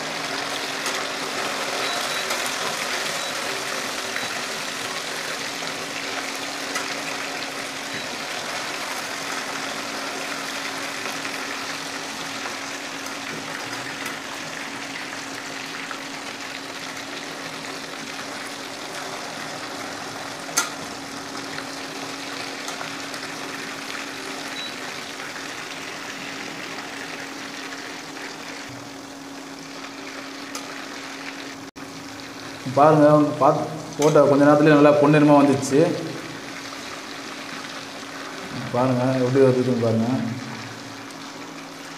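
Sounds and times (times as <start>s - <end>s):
chicken deep-frying in oil: 0.0s - 41.9s.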